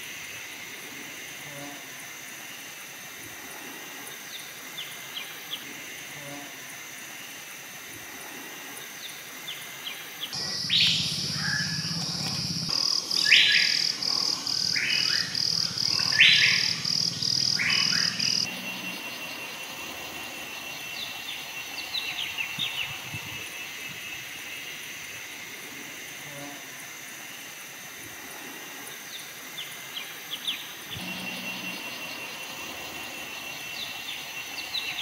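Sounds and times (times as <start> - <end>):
high insect drone: 0.0 - 35.0
forest birds calling: 8.8 - 24.6, 28.9 - 35.0.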